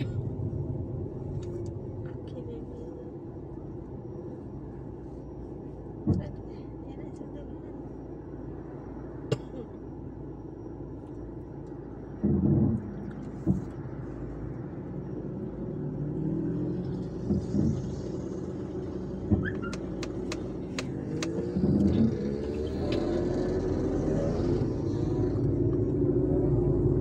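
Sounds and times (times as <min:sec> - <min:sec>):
car engine idling: 0:00.0 - 0:27.0
low thump: 0:12.2 - 0:13.8
sharp clicks: 0:19.4 - 0:21.9.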